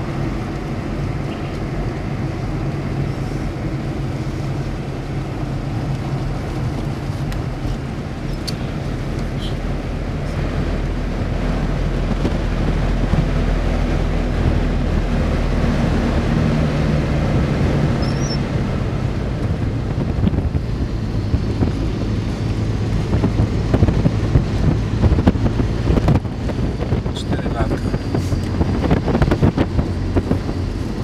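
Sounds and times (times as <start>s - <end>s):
car engine and road noise: 0.0s - 31.0s
wind buffeting microphone: 0.0s - 31.0s.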